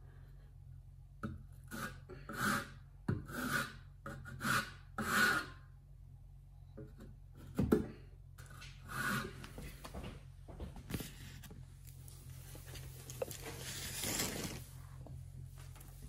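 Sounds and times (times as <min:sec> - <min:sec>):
trowel scraping mastic: 0:11.0 - 0:14.8.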